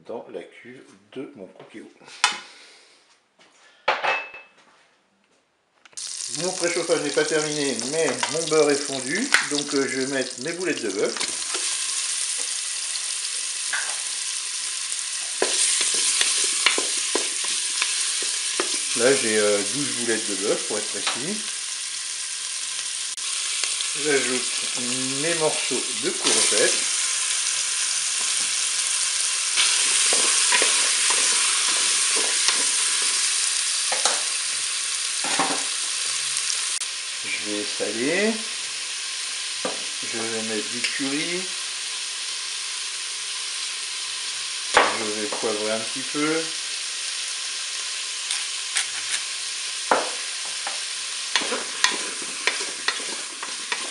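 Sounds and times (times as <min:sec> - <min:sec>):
meatballs sizzling in butter: 0:06.0 - 0:53.9
spatula knocking and scraping bowl: 0:51.4 - 0:53.9.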